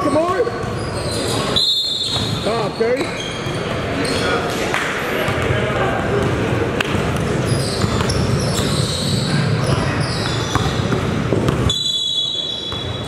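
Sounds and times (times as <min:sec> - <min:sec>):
echoing hubbub of voices: 0:00.0 - 0:13.0
sneakers squeaking: 0:00.0 - 0:13.0
basketballs bouncing on hardwood: 0:06.1 - 0:08.9, 0:09.6 - 0:11.8.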